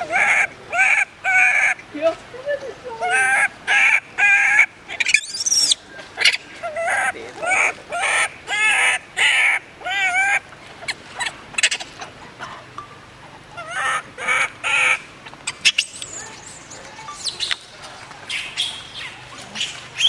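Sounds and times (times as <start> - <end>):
baby monkey crying: 0.0 - 1.8, 2.8 - 12.5, 13.5 - 17.6.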